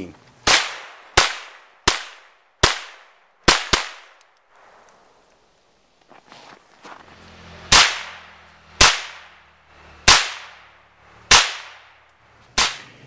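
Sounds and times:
rifle shots with echo: 0.4s - 4.2s, 7.7s - 12.0s, 12.6s - 13.0s.

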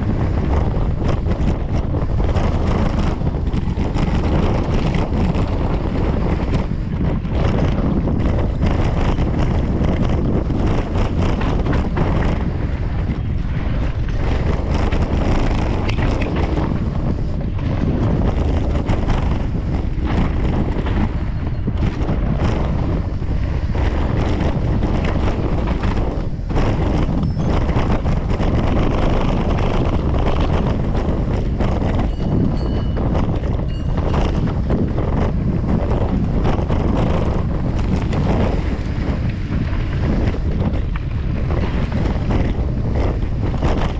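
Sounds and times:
bike rattling: 0.0s - 43.9s
wind buffeting microphone: 0.0s - 43.9s.

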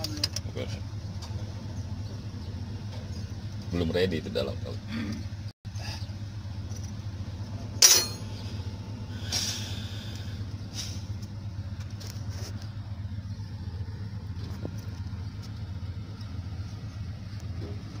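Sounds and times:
diesel engine running: 0.0s - 18.0s
short hiss: 9.2s - 11.1s.

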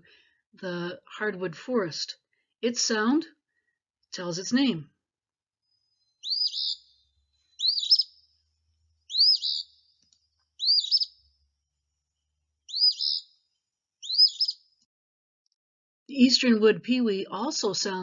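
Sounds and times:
bird singing two-part song: 5.9s - 8.3s, 9.0s - 9.9s, 10.6s - 11.3s, 12.6s - 13.3s, 14.0s - 14.6s.

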